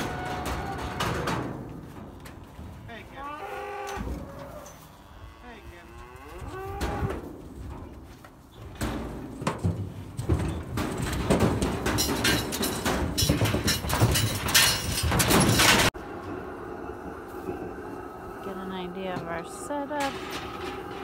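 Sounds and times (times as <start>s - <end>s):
knocks and rattles against steel panels: 0.0s - 3.2s, 6.7s - 16.0s, 18.6s - 21.0s
cattle mooing: 3.2s - 7.2s.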